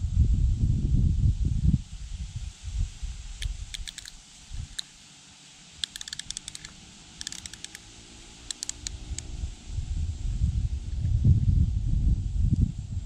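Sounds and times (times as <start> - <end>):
sharp high clicks: 3.4 - 4.9, 5.8 - 9.3.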